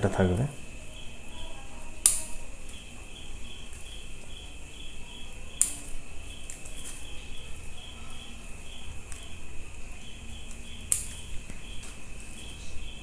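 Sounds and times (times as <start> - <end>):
insect chirping: 0.0 - 13.0
scissors snipping twigs: 5.6 - 7.0, 10.4 - 12.5.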